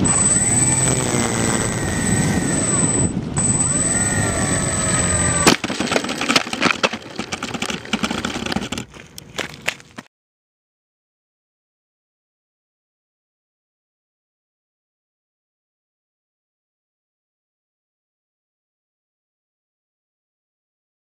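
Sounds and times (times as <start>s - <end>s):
electric motors and propellers whining: 0.0s - 9.4s
airframe scraping on pavement: 0.0s - 10.0s.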